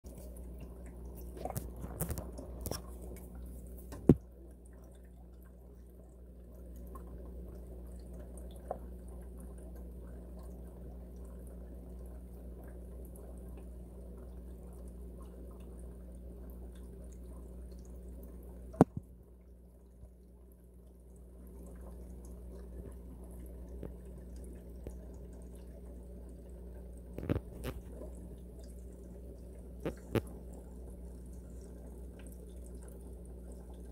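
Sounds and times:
faint dripping water: 0.1 - 33.9
steady low hum: 0.1 - 33.9
small knocks: 3.9 - 4.2.

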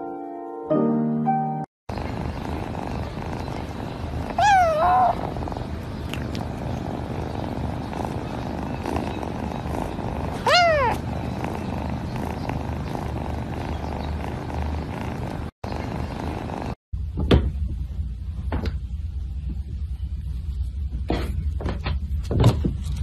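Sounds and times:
steady low rumble: 1.9 - 23.0
kitten mewing: 4.1 - 15.2.

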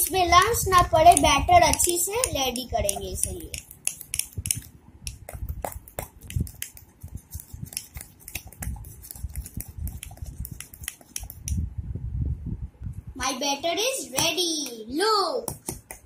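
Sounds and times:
fork whisking batter in a mug: 1.0 - 4.7, 5.3 - 11.6.

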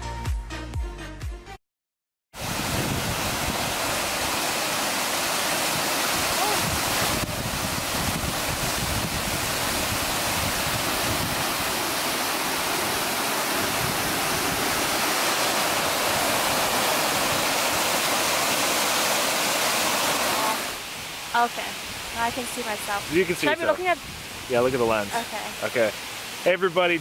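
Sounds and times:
waterfall rushing into pool: 2.4 - 27.0.

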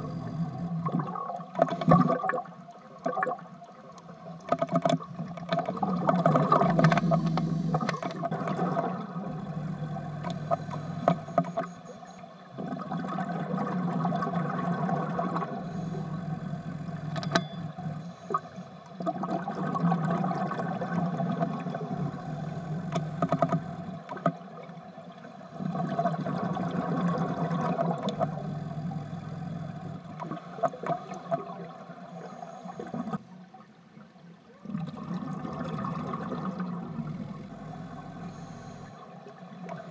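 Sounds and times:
exhaled bubbles gurgling: 0.0 - 33.2, 34.6 - 39.9
regulator breaths underwater: 6.6 - 8.5, 15.4 - 18.6, 32.0 - 33.2, 36.9 - 39.1.

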